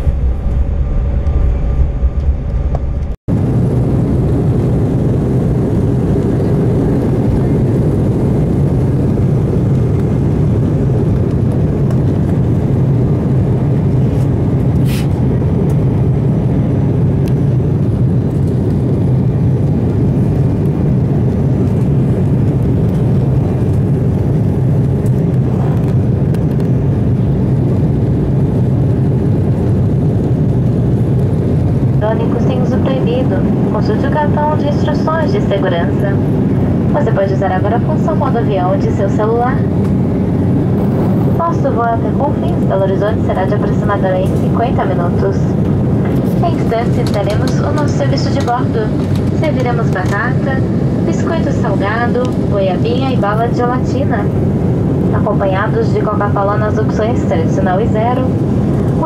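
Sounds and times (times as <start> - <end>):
rushing air: 0.0 - 22.4, 23.0 - 27.8, 38.9 - 42.2
jet engines rumbling: 0.0 - 59.0.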